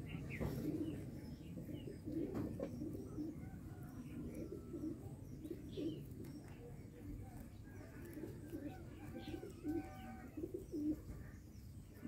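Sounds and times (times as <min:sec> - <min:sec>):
pigeons cooing: 0:00.0 - 0:12.0
small birds chirping: 0:00.0 - 0:12.0.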